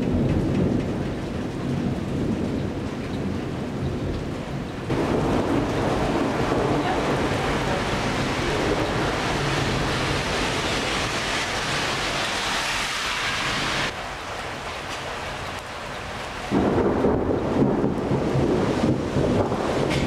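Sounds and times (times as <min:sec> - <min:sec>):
thunder rumbling: 0:00.0 - 0:20.0
heavy rain hissing: 0:04.9 - 0:20.0.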